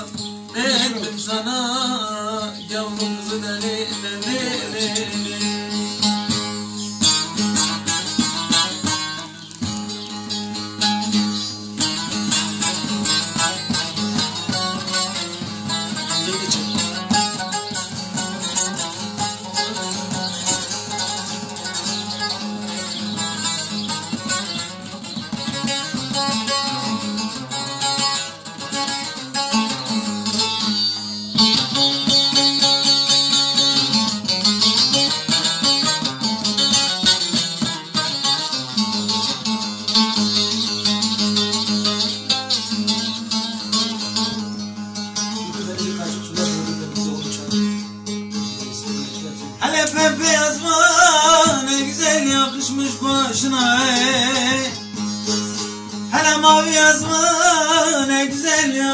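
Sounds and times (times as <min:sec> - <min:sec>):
man singing: 0:00.0 - 0:06.5, 0:48.8 - 0:55.0, 0:56.1 - 0:58.9
plucked long-necked lutes playing: 0:00.0 - 0:58.9.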